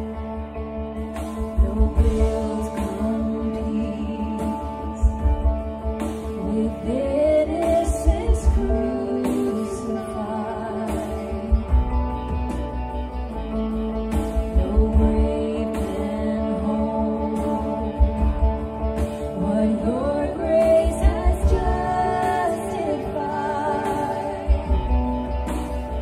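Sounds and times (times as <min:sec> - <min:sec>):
acoustic guitar: 0:00.0 - 0:26.0
keyboard: 0:00.0 - 0:26.0
women singing worship song: 0:01.6 - 0:05.4, 0:06.3 - 0:11.8, 0:14.5 - 0:25.4
drum beats: 0:04.4 - 0:06.5, 0:10.9 - 0:16.2, 0:20.6 - 0:22.9, 0:23.7 - 0:26.0.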